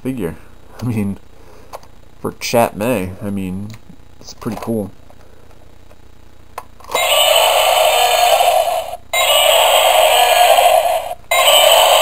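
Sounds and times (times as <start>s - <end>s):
electronic toy dinosaur roar: 6.9s - 12.0s.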